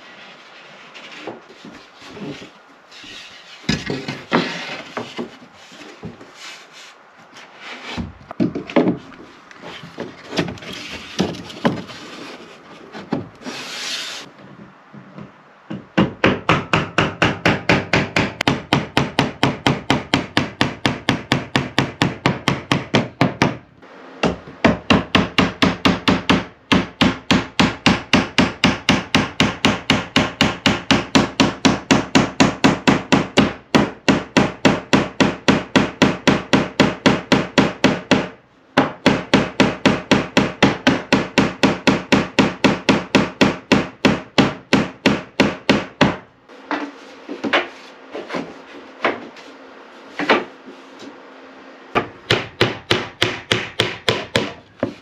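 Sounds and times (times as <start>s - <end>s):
hand tool working wood: 0.0s - 15.4s, 43.7s - 51.2s, 52.0s - 55.0s.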